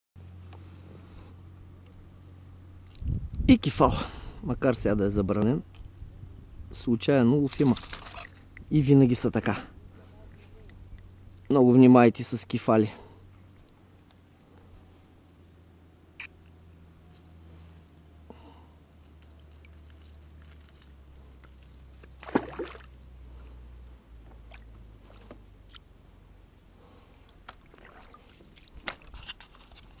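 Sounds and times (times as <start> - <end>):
sharp splash in water: 22.2 - 22.9
water lapping around a kayak: 26.8 - 29.6.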